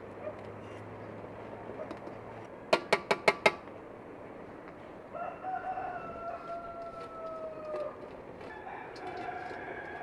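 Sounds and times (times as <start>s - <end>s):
rooster crowing: 5.1s - 10.0s.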